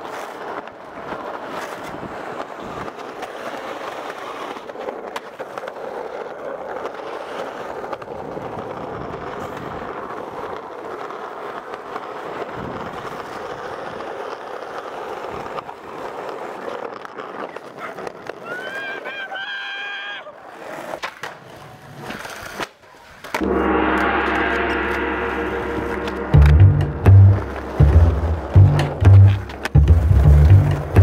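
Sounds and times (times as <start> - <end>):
skateboard clicks: 0.0 - 19.1, 20.3 - 23.4
skateboard wheels rolling on asphalt: 0.0 - 23.4, 29.2 - 31.0.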